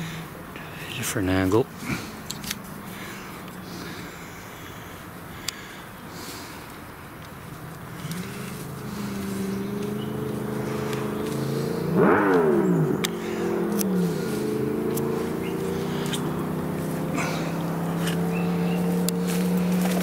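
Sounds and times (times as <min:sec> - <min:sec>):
motorcycle engine revving: 0:07.5 - 0:20.0.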